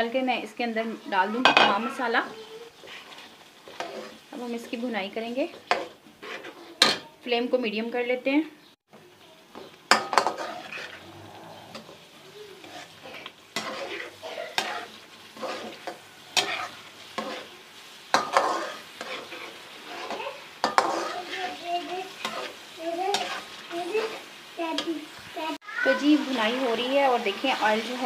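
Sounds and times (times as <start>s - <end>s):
chicken sizzling in a pan: 0.0s - 28.0s
spoon scraping and knocking a pan: 1.4s - 7.2s, 9.5s - 24.9s.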